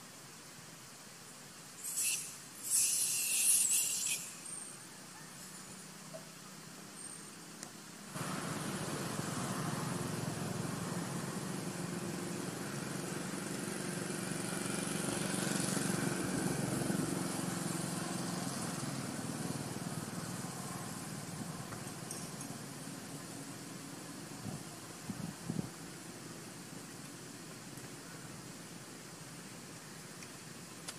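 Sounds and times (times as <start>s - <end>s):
motor engine running: 8.2s - 22.3s.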